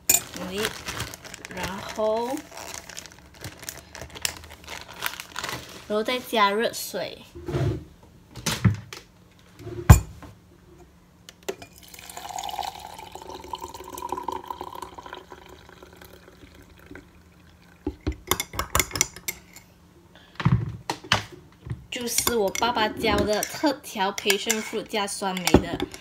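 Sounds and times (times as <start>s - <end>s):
hot water pouring into mug: 11.7s - 18.1s
metal spoon clinking in mug: 24.2s - 24.8s.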